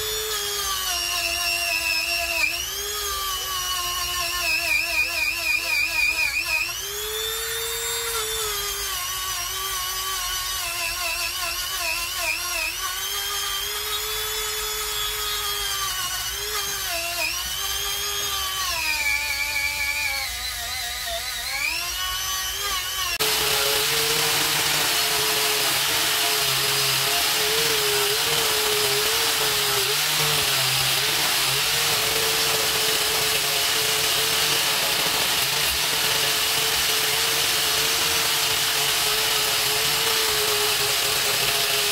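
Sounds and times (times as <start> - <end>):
electric drill motor whine: 0.0 - 41.9.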